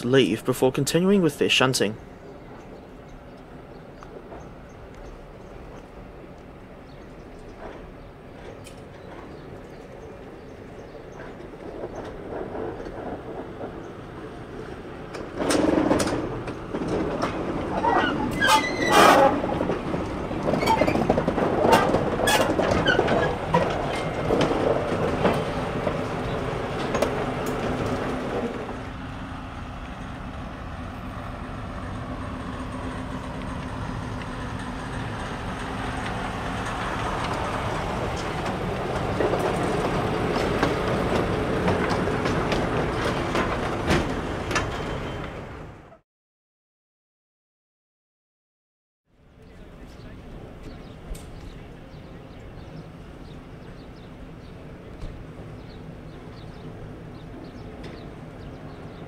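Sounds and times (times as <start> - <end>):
locomotive rumble: 0.0 - 46.0, 49.1 - 59.0
train wheels clanking and knocking: 7.4 - 28.9, 31.9 - 45.6, 54.4 - 59.0.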